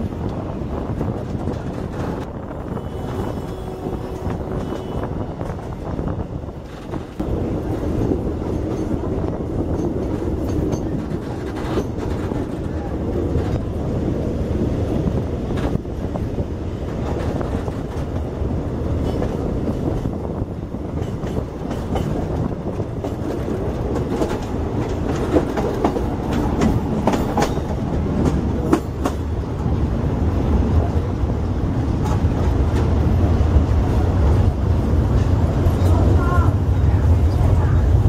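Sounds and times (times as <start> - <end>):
wheels clicking over rail joints: 0.0 - 14.2, 15.4 - 30.1
train rumbling on rails: 0.0 - 38.0.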